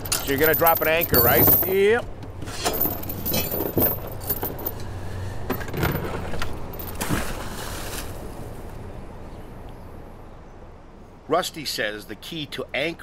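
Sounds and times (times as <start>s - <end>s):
anchor chain clinking and rattling: 0.0s - 4.9s, 5.5s - 7.0s.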